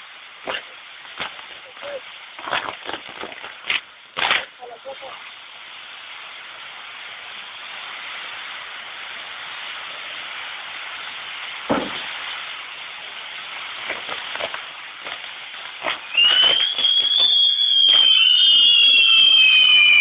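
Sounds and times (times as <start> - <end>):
fireworks wheels hissing: 0.0 - 20.0
short cracks: 2.4 - 4.6
sharp bang: 11.7 - 12.1.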